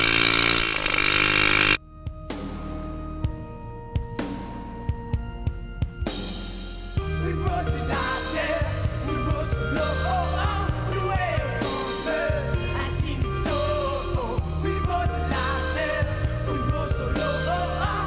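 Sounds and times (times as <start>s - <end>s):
song with singing drums and bass: 7.0s - 18.0s.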